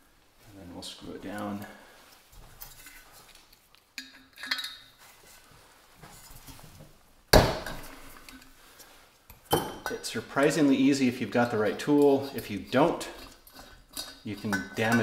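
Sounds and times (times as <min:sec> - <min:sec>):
metal tools clinking and scraping: 0:02.4 - 0:05.5, 0:09.3 - 0:15.0.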